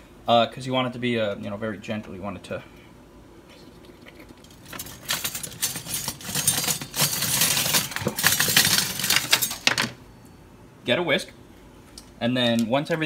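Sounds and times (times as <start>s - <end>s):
metal utensils clattering: 4.4s - 9.9s.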